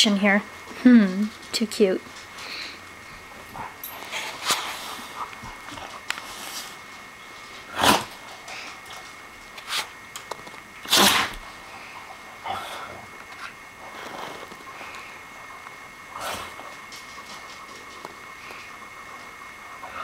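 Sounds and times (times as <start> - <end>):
dog snorting: 7.6 - 9.0, 10.8 - 15.2, 16.1 - 18.0.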